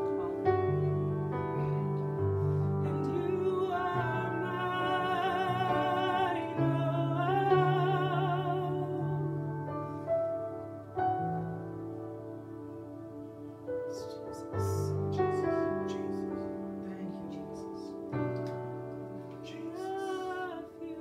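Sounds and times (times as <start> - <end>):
electronic keyboard chords: 0.0 - 21.0
woman singing with vibrato: 2.8 - 9.5, 19.4 - 21.0.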